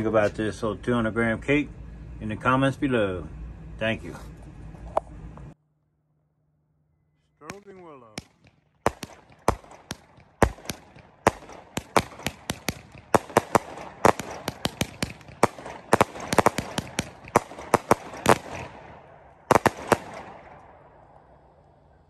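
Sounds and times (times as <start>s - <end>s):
fireworks bangs: 7.4s - 21.8s.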